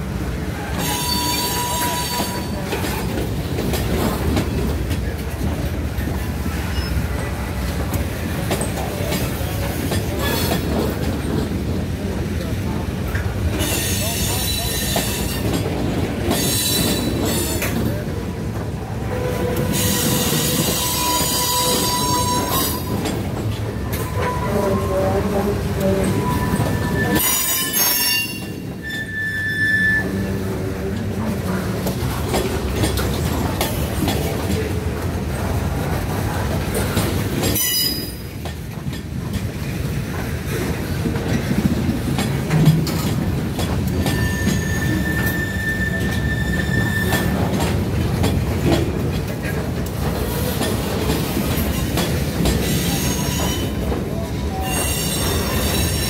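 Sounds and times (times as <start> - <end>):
train wheels rumbling on rail: 0.0 - 56.0
high-pitched wheel squeals: 0.8 - 2.6, 19.1 - 23.0, 26.0 - 30.4, 44.0 - 47.4, 54.5 - 56.0.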